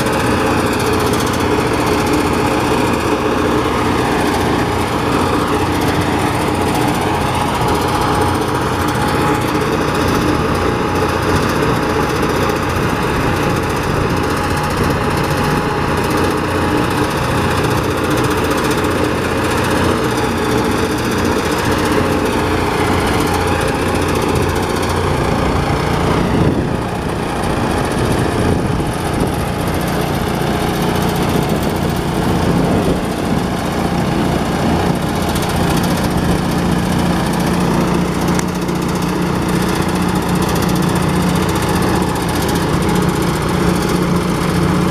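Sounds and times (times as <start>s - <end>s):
rice thresher running: 0.0s - 44.9s.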